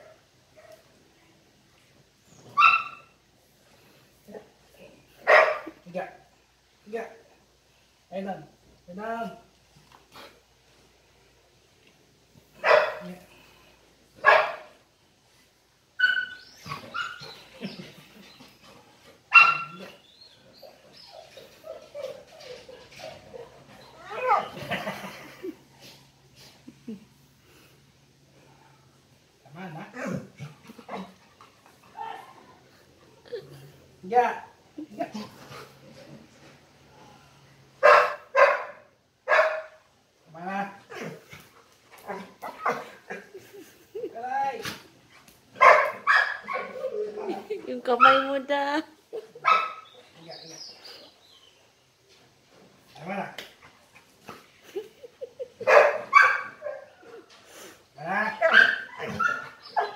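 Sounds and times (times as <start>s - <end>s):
dog barking: 5.2s - 5.7s, 12.6s - 13.1s, 14.2s - 14.7s, 19.3s - 19.9s, 37.8s - 39.8s, 45.6s - 46.8s, 48.0s - 48.3s, 49.4s - 49.9s, 55.6s - 56.9s, 58.2s - 59.9s
dog whining and yipping: 16.0s - 18.5s, 19.3s - 24.6s, 58.4s - 59.9s.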